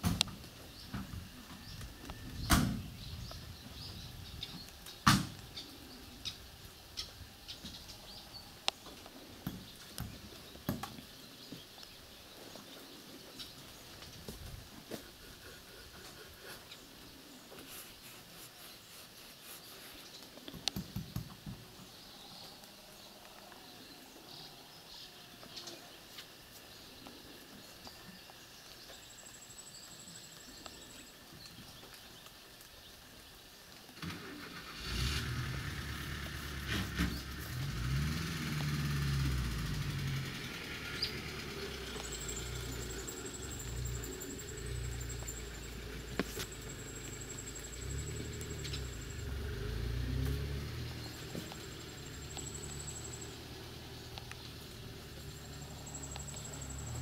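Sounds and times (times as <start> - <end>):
van engine starting and running: 34.0 - 57.0.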